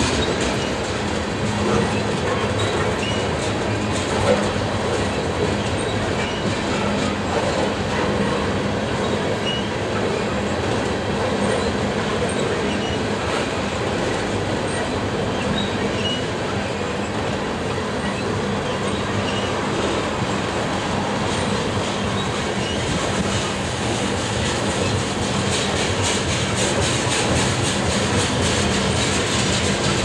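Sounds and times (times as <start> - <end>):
wheels squeaking: 0.0 - 10.3, 11.4 - 17.2, 18.0 - 20.1, 21.3 - 23.9
train wheels clattering on rails: 0.0 - 30.0.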